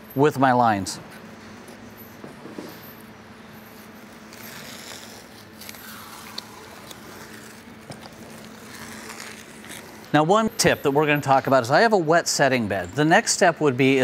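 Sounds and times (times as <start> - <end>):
steady low hum: 0.0 - 14.0
tape peeling with tearing rasp: 3.7 - 10.1.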